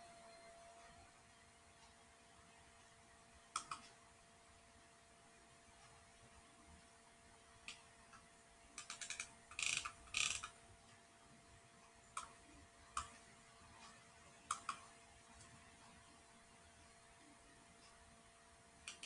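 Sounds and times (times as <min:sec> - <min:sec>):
mouse scroll-wheel ticks: 0:03.5 - 0:04.0, 0:07.6 - 0:10.6, 0:12.1 - 0:15.6.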